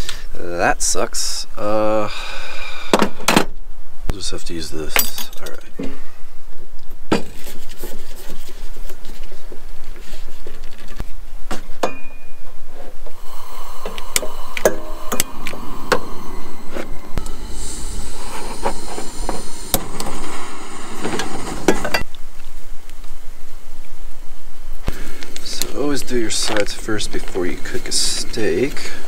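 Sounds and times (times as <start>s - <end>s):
gas hissing: 12.9s - 22.1s.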